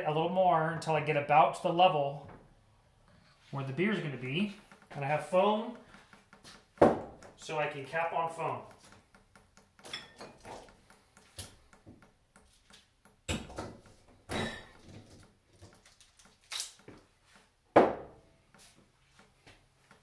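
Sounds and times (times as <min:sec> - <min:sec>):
bottling gear knocks and clunks: 0:13.2 - 0:15.8.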